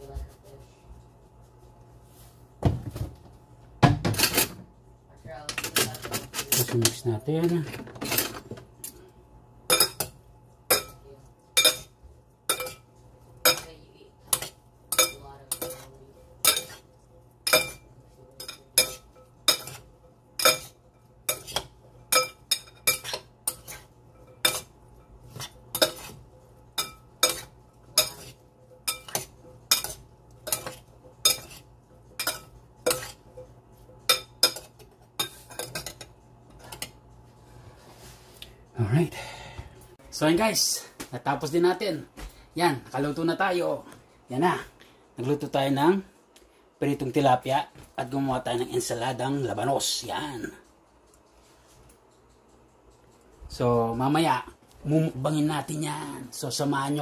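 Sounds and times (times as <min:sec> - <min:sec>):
cutlery clinking on glass bowl: 0:11.6 - 0:13.7, 0:14.3 - 0:37.0.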